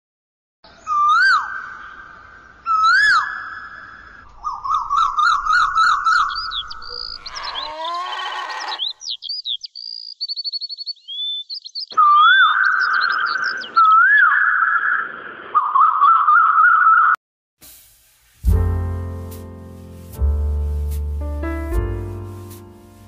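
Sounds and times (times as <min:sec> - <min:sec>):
high bird chirps and trill: 0:00.7 - 0:17.1
bird whistled call: 0:02.7 - 0:03.8, 0:10.3 - 0:14.4
bird warbling: 0:04.4 - 0:09.4.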